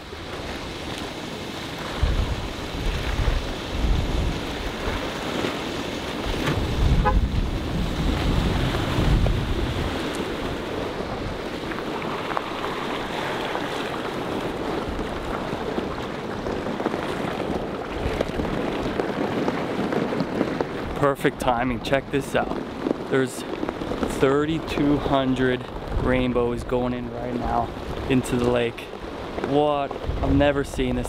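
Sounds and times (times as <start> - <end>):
water rushing from a pipe: 0.0 - 20.0
wind buffeting microphone: 0.0 - 31.0.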